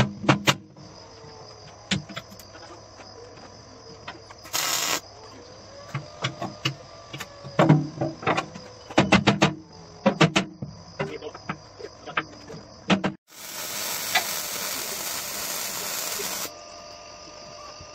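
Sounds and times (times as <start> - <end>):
crackling welding arc: 4.5 - 5.0, 13.3 - 16.5.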